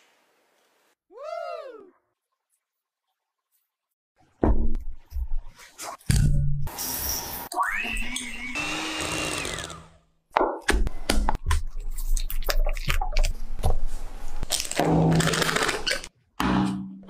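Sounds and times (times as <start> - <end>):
electric hand mixer whirring: 8.3 - 9.9.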